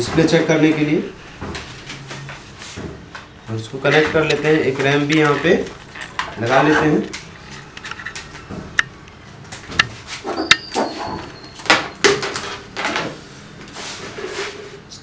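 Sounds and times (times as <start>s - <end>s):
circuit board clicking and knocking: 9.6s - 10.6s.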